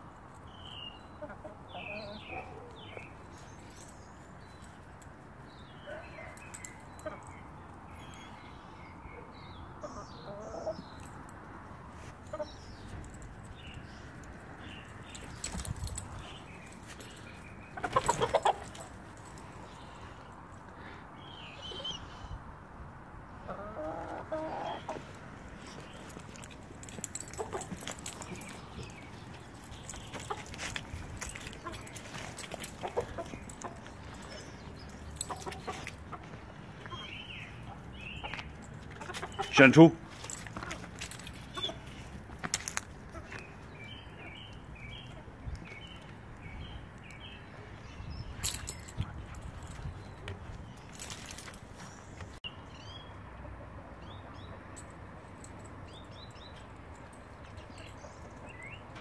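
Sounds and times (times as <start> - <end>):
hen clucking: 23.5 - 25.1.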